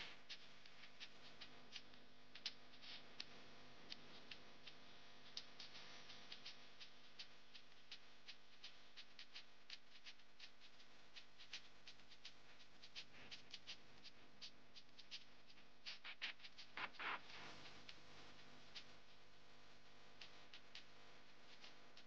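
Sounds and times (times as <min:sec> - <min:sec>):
food frying with pops and crackles: 0:14.7 - 0:18.9.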